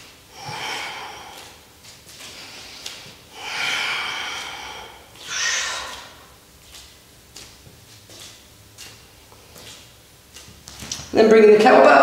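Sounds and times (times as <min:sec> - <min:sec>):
man breathing through the nose: 0:00.3 - 0:01.6, 0:02.2 - 0:06.1.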